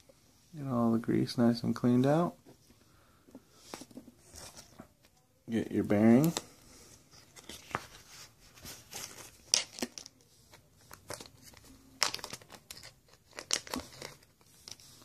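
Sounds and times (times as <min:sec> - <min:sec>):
packaging crinkling and rustling: 0:07.2 - 0:15.0.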